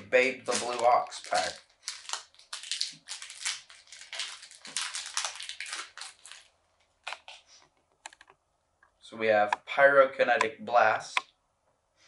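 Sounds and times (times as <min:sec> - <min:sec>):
wrapper tearing and crinkling: 0:00.3 - 0:07.2.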